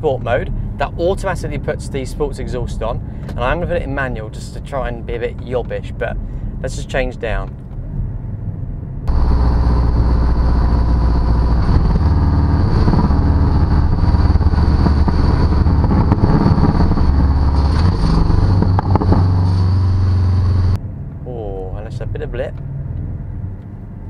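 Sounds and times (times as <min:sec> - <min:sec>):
sports car exhaust note: 0:08.6 - 0:21.1
exhaust crackles: 0:09.1 - 0:20.8.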